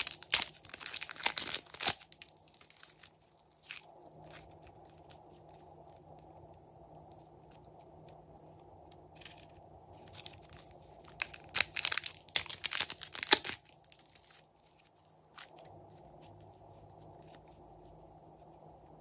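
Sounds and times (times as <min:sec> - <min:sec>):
plastic bag crinkling: 0:00.0 - 0:07.8, 0:09.1 - 0:19.0.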